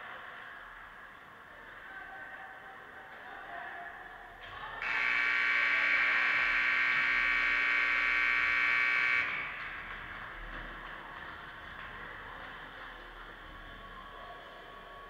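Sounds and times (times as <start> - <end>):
buzzy scoreboard horn blast: 4.8 - 10.2.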